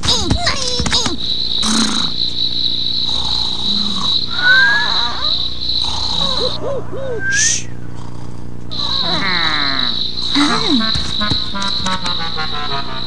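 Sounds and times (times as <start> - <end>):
crickets chirping: 0.4 - 8.0, 8.7 - 13.0
short rising whistle: 4.3 - 5.0, 7.0 - 7.8.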